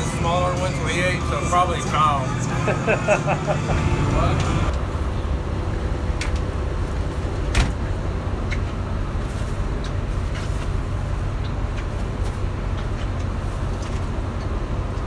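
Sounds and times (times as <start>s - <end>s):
boat motor rumbling: 0.0s - 15.0s.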